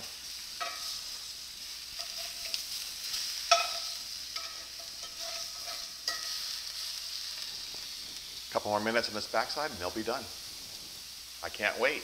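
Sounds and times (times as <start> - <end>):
sausage sizzling in skillet: 0.0 - 12.0
metal spatula clinking on pan: 0.6 - 1.0, 2.0 - 6.6.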